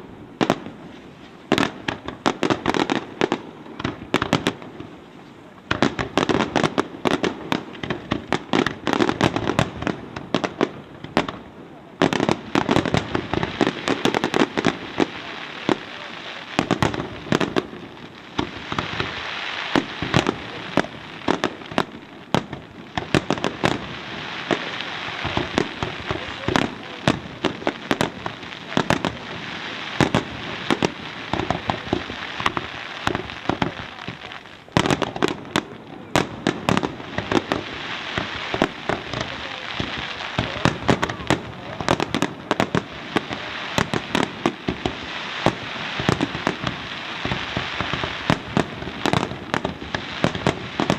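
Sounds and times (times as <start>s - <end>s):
fireworks crackle: 0.0s - 50.9s
firework shells bursting: 12.0s - 50.9s.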